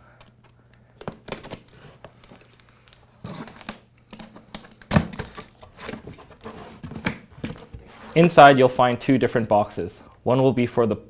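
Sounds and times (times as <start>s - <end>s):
cardboard flaps rustling and scraping: 5.0s - 8.5s.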